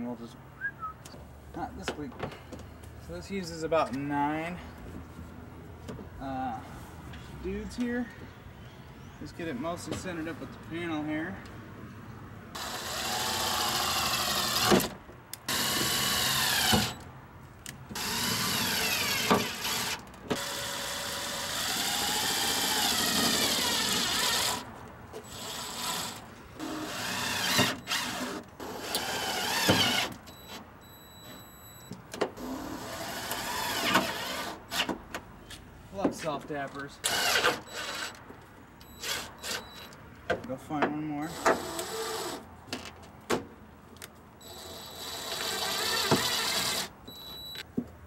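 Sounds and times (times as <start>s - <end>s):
cordless driver driving screws: 12.6s - 17.1s, 44.5s - 47.0s.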